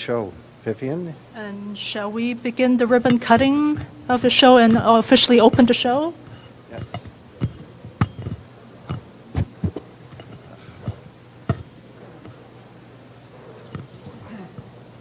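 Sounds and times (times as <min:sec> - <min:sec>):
steady low hum: 0:00.0 - 0:15.0
sharp clicks and knocks: 0:03.0 - 0:12.4.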